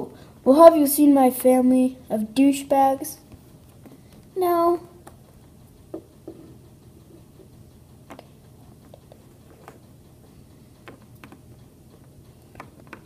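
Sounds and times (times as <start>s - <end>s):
low room hum: 0.0s - 13.0s
toy tapping on wooden table: 5.9s - 6.5s.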